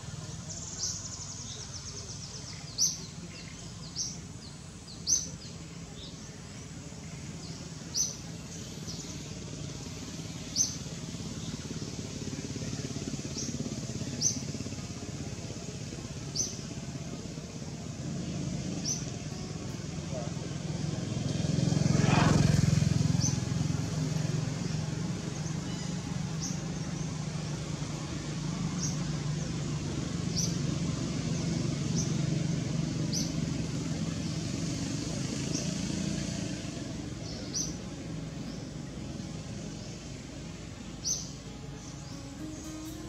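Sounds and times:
vehicle engine running: 0:00.0 - 0:43.0.

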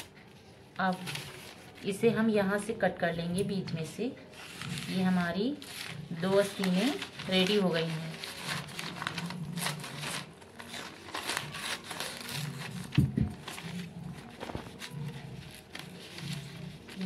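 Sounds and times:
paper crinkling: 0:00.0 - 0:02.1, 0:04.3 - 0:17.0
scissors snipping paper: 0:05.6 - 0:17.0.

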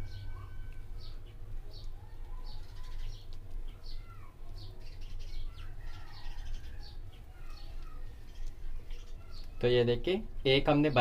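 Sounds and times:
steady low hum: 0:00.0 - 0:02.4
small birds chirping: 0:00.0 - 0:11.0.

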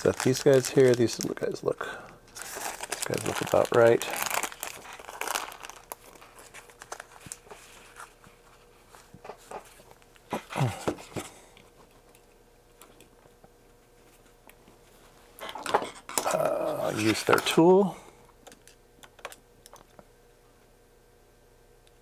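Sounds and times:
plastic bags crinkling: 0:00.0 - 0:01.6, 0:02.3 - 0:08.2.

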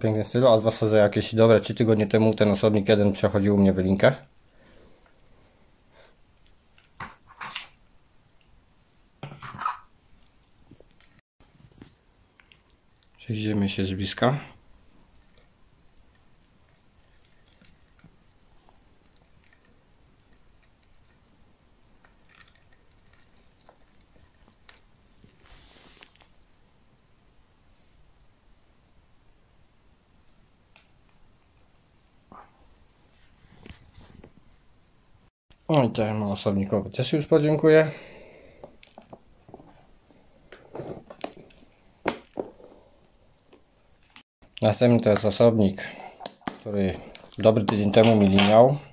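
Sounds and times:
soft rustle: 0:10.1 - 0:13.2, 0:14.7 - 0:27.0, 0:31.3 - 0:34.8.

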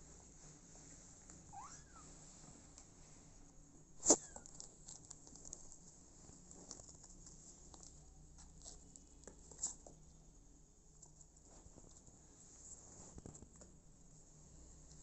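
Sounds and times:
kittens' claws scratching: 0:04.0 - 0:10.1.

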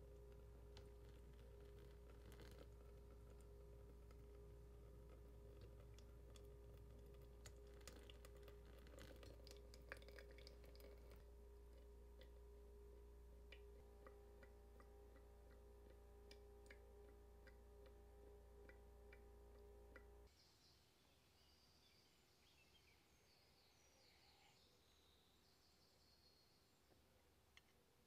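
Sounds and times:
coffee dripping: 0:00.0 - 0:20.3
low hum: 0:00.0 - 0:20.4.

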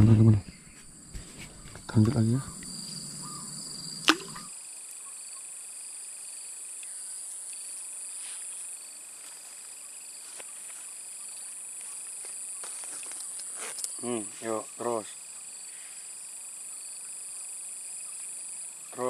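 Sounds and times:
insects trilling: 0:00.0 - 0:19.0.

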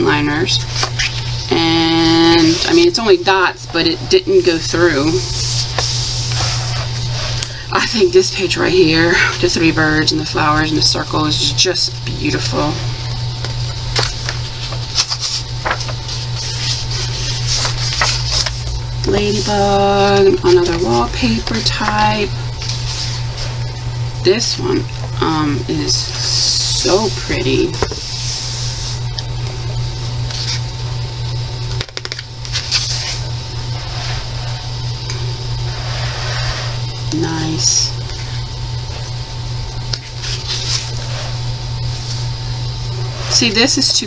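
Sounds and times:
steady low hum: 0:00.0 - 0:44.0
page rustling: 0:13.9 - 0:22.0, 0:31.8 - 0:33.3, 0:40.0 - 0:41.1.

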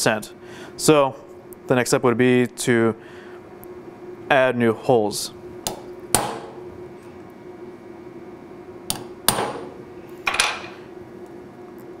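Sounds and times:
hammer striking metal punch: 0:05.7 - 0:06.5.

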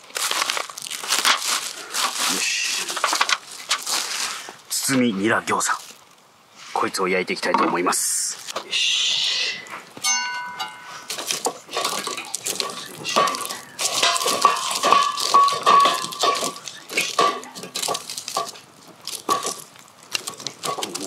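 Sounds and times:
bright metallic ring: 0:10.0 - 0:11.1
metal cookware clattering: 0:10.0 - 0:18.6.

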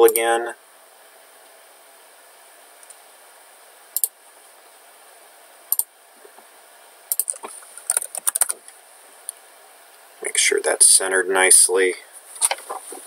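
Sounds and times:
faint steady hiss: 0:00.0 - 0:13.0
computer mouse clicking: 0:07.1 - 0:08.6.

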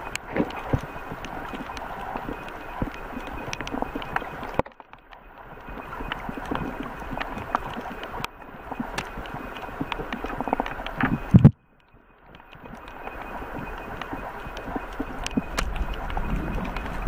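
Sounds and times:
sharp clicks and crackles: 0:00.0 - 0:17.0
underwater rush of water: 0:05.3 - 0:11.5, 0:12.4 - 0:17.0.

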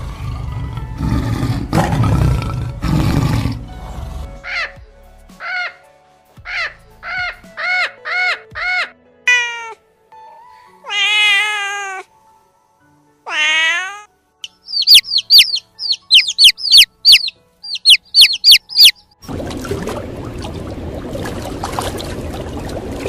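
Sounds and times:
cat meowing: 0:09.3 - 0:09.8, 0:10.8 - 0:12.1, 0:13.3 - 0:14.1.

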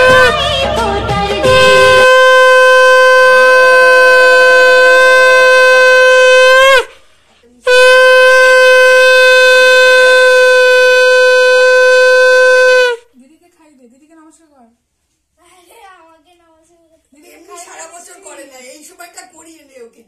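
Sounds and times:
conch shell blasts: 0:00.0 - 0:00.8, 0:01.4 - 0:07.1, 0:07.7 - 0:13.0.

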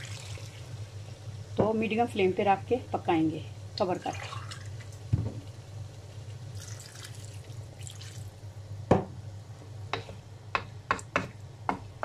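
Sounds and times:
water pouring into a pan: 0:00.0 - 0:00.8, 0:03.9 - 0:05.0, 0:06.5 - 0:08.4
spatula knocking against pan: 0:09.9 - 0:11.9.

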